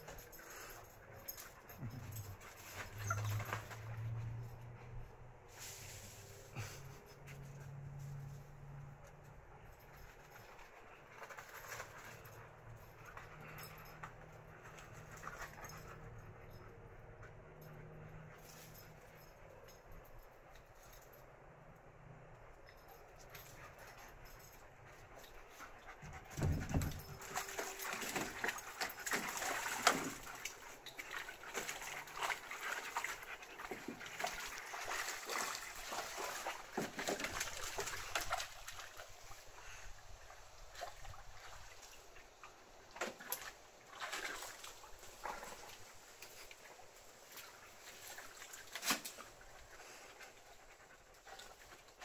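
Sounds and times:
dogs splashing in muddy water: 0:26.4 - 0:39.6, 0:40.7 - 0:52.0.

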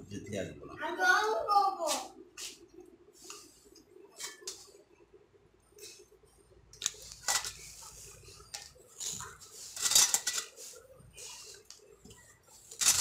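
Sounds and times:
metal parts rattling in a steel bowl: 0:07.2 - 0:07.6, 0:08.5 - 0:10.6, 0:12.7 - 0:13.0.

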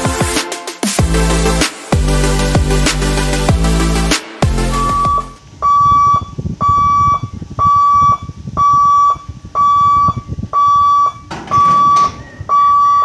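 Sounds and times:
low rumbling noise: 0:01.0 - 0:13.0
level crossing warning beeps: 0:04.7 - 0:13.0.

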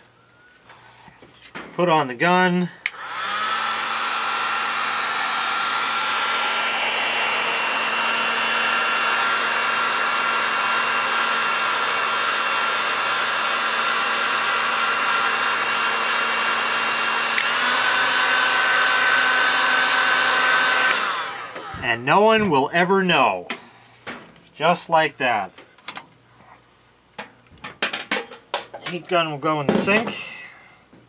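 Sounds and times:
heat gun motor whine: 0:02.8 - 0:22.0.

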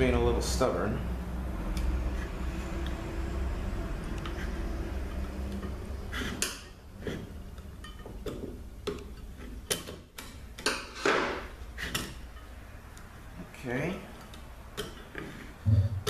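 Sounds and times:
screwdriver scraping metal: 0:11.8 - 0:12.2.

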